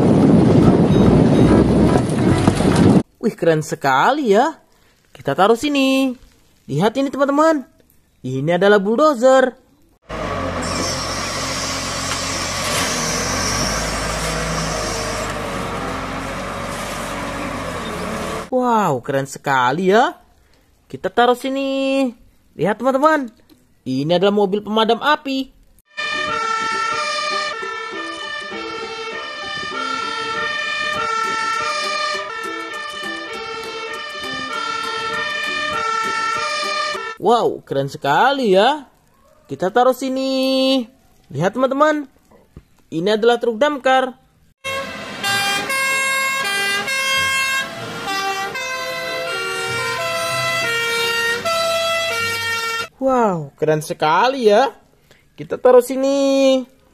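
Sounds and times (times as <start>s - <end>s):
fire engine siren: 10.1s - 18.5s, 25.9s - 37.2s, 44.6s - 52.9s.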